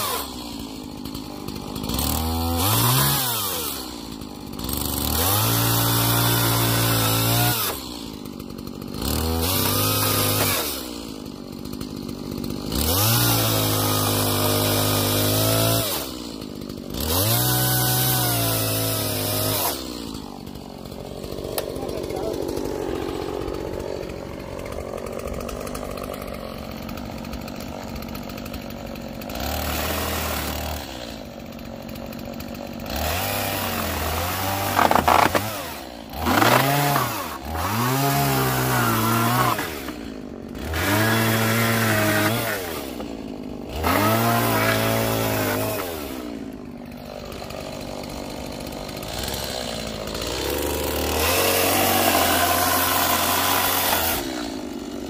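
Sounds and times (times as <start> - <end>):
chainsaw cutting wood: 0.0 - 55.0.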